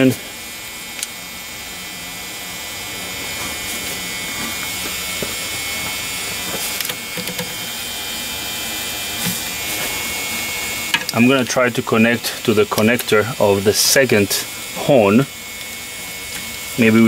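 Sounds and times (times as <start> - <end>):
background buzz and hum: 0.0 - 17.0.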